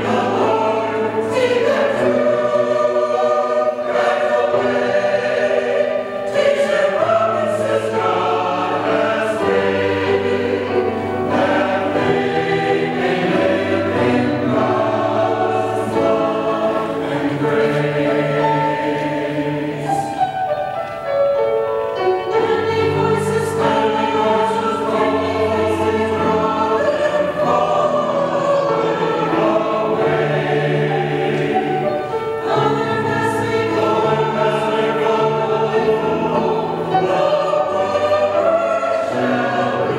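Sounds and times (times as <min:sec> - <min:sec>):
choir singing in parts: 0:00.0 - 0:20.8, 0:21.9 - 0:39.9
piano accompaniment: 0:00.0 - 0:39.9.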